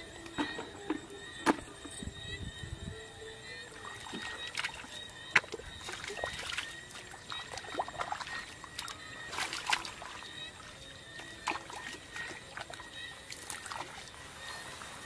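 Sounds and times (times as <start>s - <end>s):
hands splashing in muddy water: 4.1s - 10.3s.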